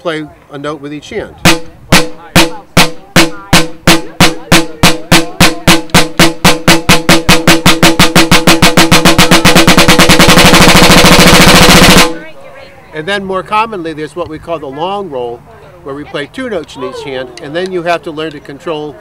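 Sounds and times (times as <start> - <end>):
snare drum roll: 1.4 - 12.2.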